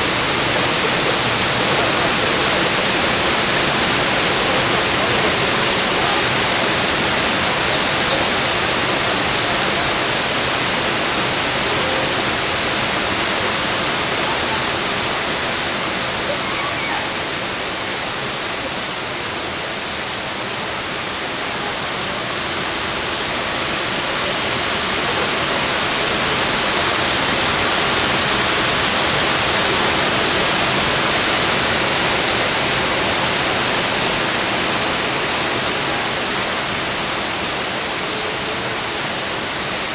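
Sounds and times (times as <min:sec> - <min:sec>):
river flowing: 0:00.0 - 0:39.9
waterfall rushing: 0:00.0 - 0:39.9.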